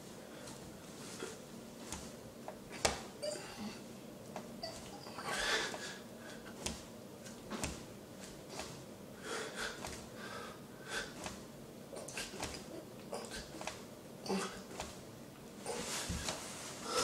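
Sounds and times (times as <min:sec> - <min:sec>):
man breathing quickly: 0:05.2 - 0:06.9, 0:08.4 - 0:11.5, 0:15.7 - 0:17.0.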